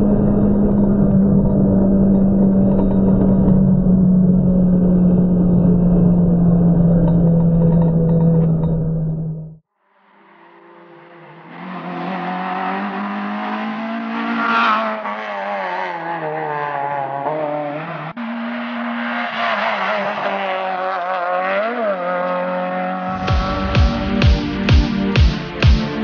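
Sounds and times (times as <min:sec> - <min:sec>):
rally car engine revving: 0:00.0 - 0:09.6, 0:10.2 - 0:26.0
music with heavy beat: 0:23.1 - 0:26.0.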